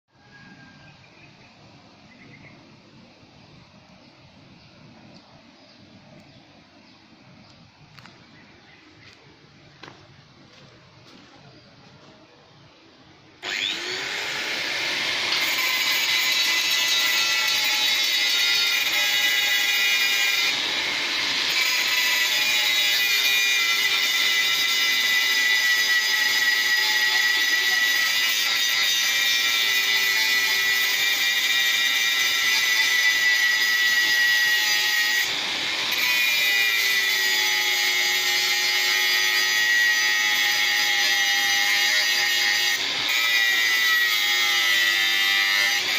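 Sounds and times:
angle grinder cutting steel: 13.4 - 45.9.

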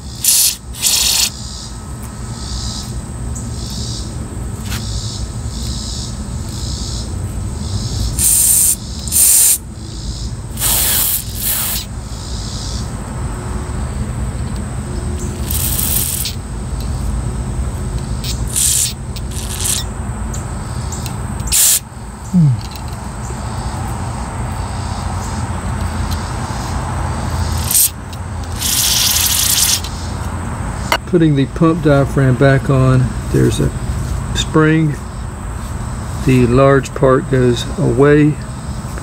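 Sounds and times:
aerosol spray hissing: 0.2 - 1.3, 8.2 - 9.6, 10.5 - 11.9, 15.4 - 16.4, 18.2 - 19.8, 21.5 - 21.8, 28.6 - 29.9.

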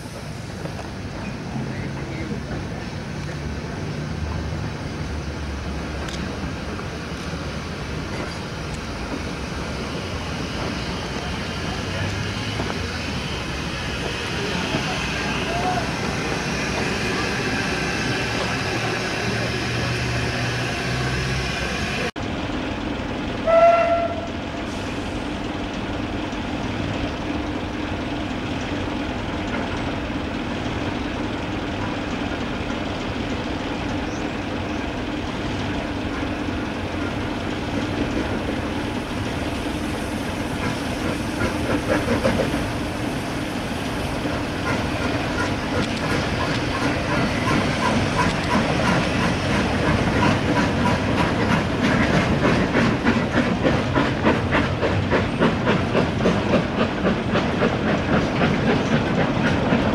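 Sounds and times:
steam locomotive hissing: 0.0 - 22.1, 22.8 - 59.9
steam train working: 0.0 - 59.9
steam whistle blast: 23.4 - 24.3.

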